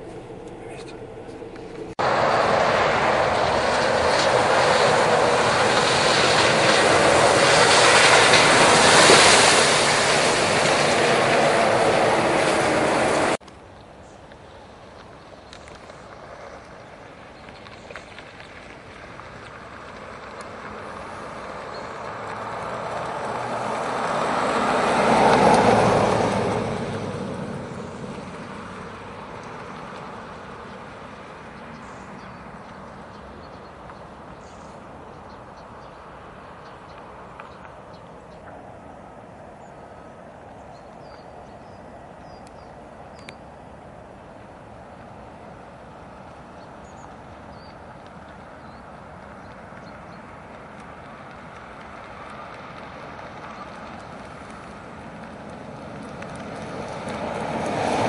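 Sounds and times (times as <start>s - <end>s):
car driving past: 0.0s - 13.4s, 17.6s - 37.7s, 46.0s - 58.0s
tyres rushing through mud and water: 0.0s - 58.0s.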